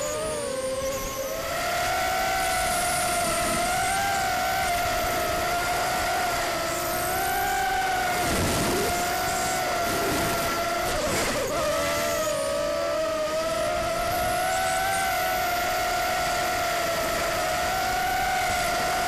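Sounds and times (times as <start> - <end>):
quadcopter motors whining: 0.0 - 19.0.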